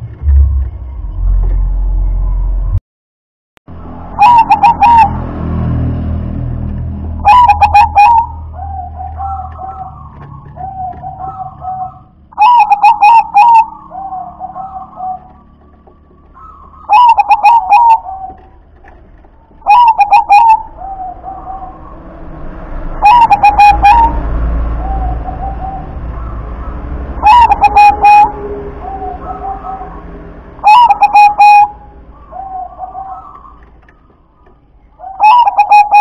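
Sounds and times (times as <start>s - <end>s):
dove cooing: 4.2s - 5.2s, 7.2s - 22.0s, 22.9s - 30.0s, 30.6s - 36.0s.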